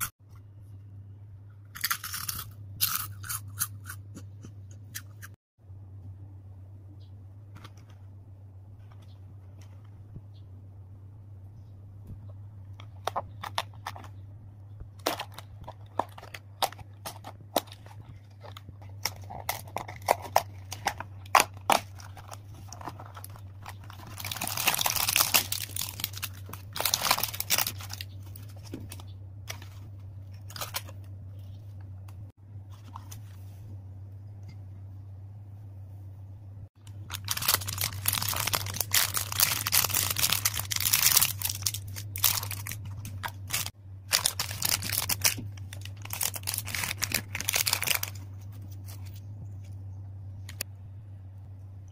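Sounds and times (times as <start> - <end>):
low hum: 0.0 - 51.9
plastic crinkling: 15.0 - 31.8, 36.9 - 49.7.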